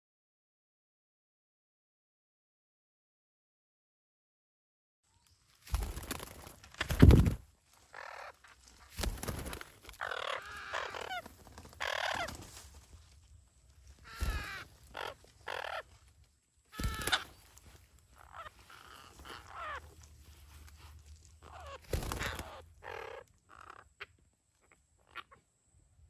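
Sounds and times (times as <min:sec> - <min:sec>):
wings flapping: 0:05.5 - 0:07.5, 0:08.6 - 0:12.9, 0:14.0 - 0:15.8, 0:16.7 - 0:20.8, 0:21.4 - 0:22.6
parakeets squawking: 0:10.0 - 0:12.4, 0:14.0 - 0:15.9, 0:16.8 - 0:17.4, 0:18.2 - 0:20.0, 0:21.4 - 0:23.8.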